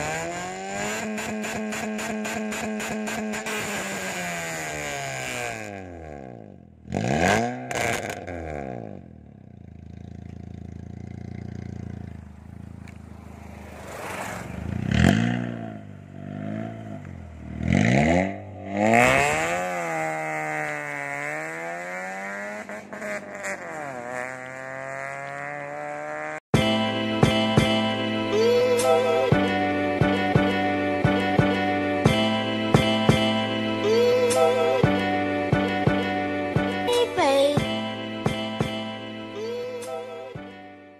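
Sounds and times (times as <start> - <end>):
car engine revving loudly: 0.0 - 9.1, 13.0 - 26.4.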